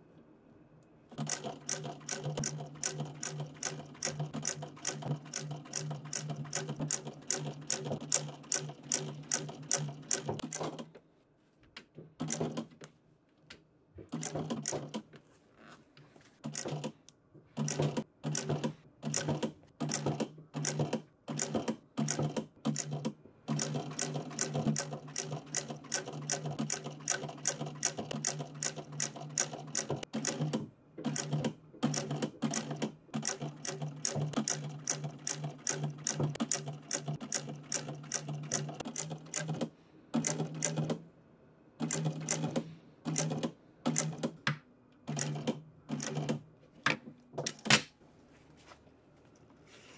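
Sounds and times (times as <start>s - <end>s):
sewing machine needle strokes: 1.2s - 10.8s, 17.6s - 40.9s.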